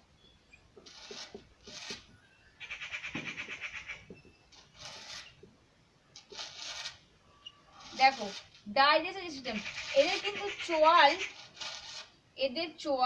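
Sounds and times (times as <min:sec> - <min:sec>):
marker squeaking on whiteboard: 0:00.8 - 0:05.5, 0:06.2 - 0:08.5, 0:09.3 - 0:12.1.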